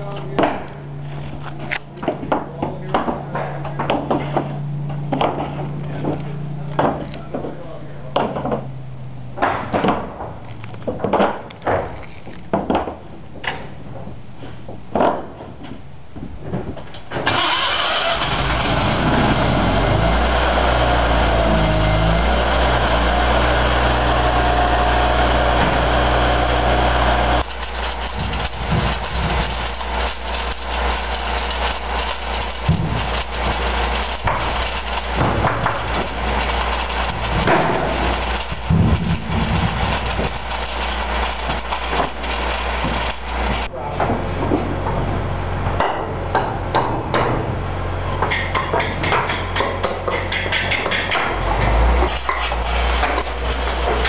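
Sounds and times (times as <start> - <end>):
engine-driven welder running: 0.0 - 7.9, 17.0 - 43.7, 46.3 - 54.0
knocks and clatter: 9.4 - 17.3, 20.9 - 45.0, 48.2 - 54.0
welding arc crackling and hissing: 18.1 - 43.7, 50.8 - 54.0.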